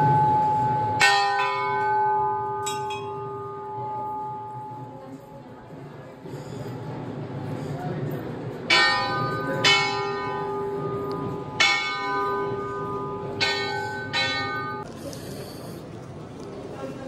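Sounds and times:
temple bell ringing: 0.0s - 6.8s, 8.2s - 14.9s.

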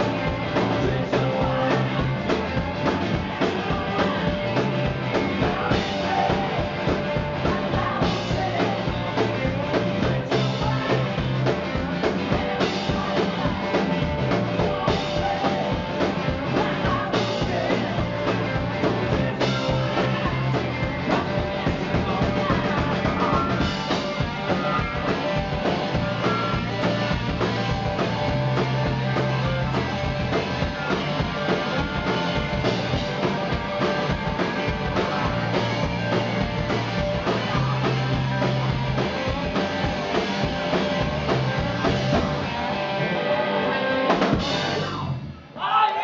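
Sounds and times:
distorted electric guitars: 0.0s - 45.6s
bass guitar: 0.0s - 45.7s
drum kit: 0.0s - 46.0s.

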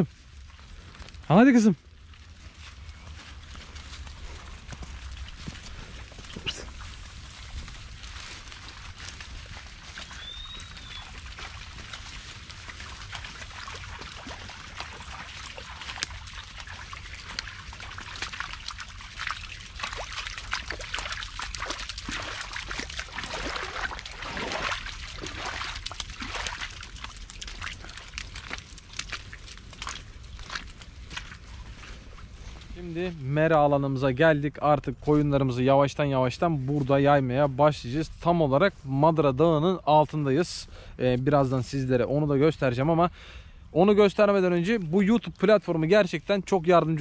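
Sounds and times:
hooves and footsteps on muddy ground: 0.0s - 47.0s.

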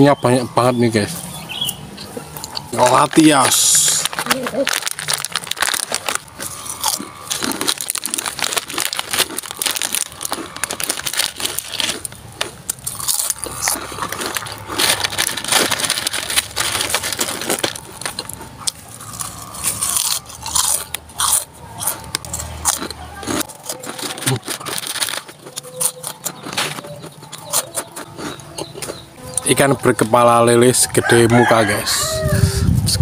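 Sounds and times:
crackers crunching: 0.2s - 31.6s
plastic wrapper crinkling: 2.8s - 21.0s, 22.7s - 27.0s.

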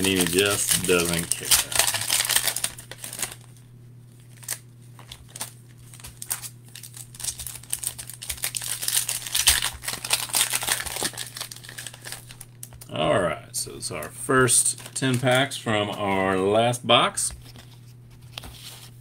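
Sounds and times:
foil wrappers crinkling and tearing: 0.0s - 12.9s, 14.5s - 16.2s.

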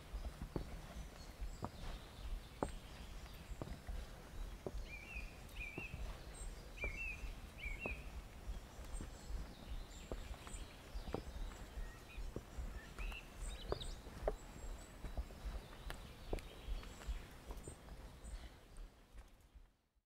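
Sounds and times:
footsteps on wooden stairs: 0.0s - 19.3s
small birds chirping: 0.0s - 19.9s.

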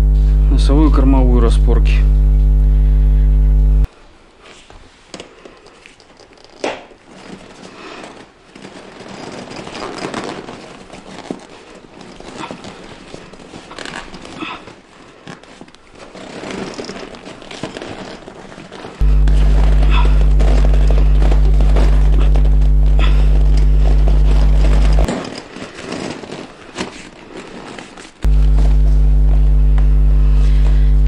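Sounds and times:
fabric rustling and crinkling: 3.8s - 31.0s.

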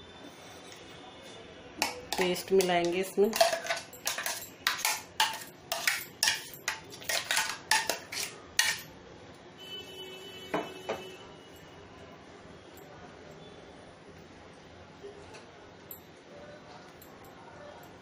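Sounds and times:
metal spoon clinking in steel jar: 1.8s - 8.9s.

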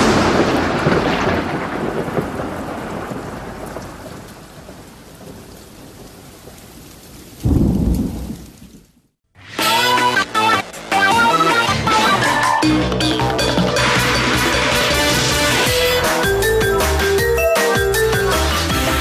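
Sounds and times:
thunder crash: 0.0s - 5.5s, 7.4s - 8.8s
low rumble of thunder: 0.0s - 9.1s
rain hiss: 0.0s - 9.1s.

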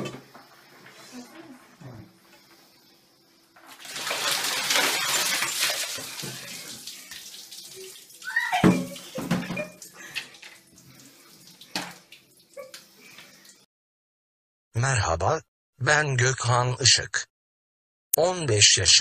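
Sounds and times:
water pouring and splashing: 3.5s - 13.6s
water dripping: 3.6s - 13.6s
short voiced cry: 8.2s - 9.0s.

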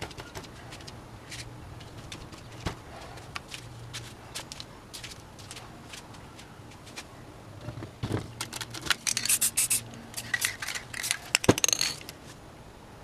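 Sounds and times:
spray can clicks and scrapes: 8.9s - 12.2s
spray paint hissing: 9.0s - 11.5s.

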